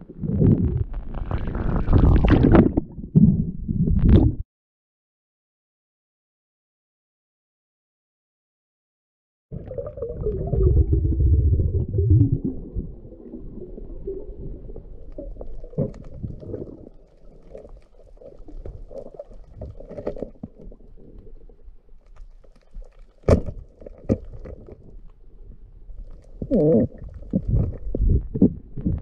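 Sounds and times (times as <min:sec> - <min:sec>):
underwater crackling: 0:00.0 - 0:04.3, 0:09.6 - 0:25.2, 0:25.9 - 0:29.0
underwater rumble of moving water: 0:00.0 - 0:04.4, 0:09.5 - 0:29.0.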